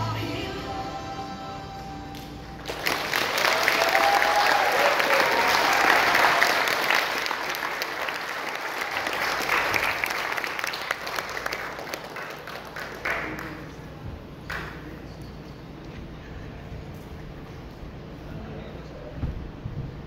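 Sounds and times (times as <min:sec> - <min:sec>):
audience applauding: 0:02.6 - 0:13.9.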